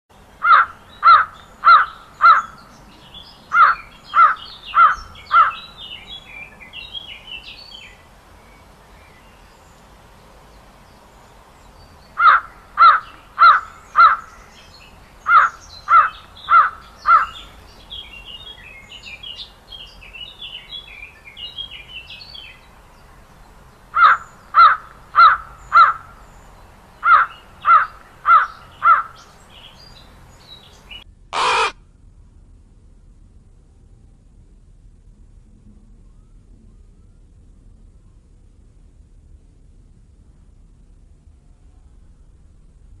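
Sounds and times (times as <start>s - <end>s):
crow cawing: 0.4s - 2.5s, 3.5s - 5.6s, 12.2s - 14.3s, 15.3s - 17.4s, 24.0s - 26.0s, 27.0s - 29.2s, 31.4s - 31.8s
small birds chirping: 0.4s - 31.8s.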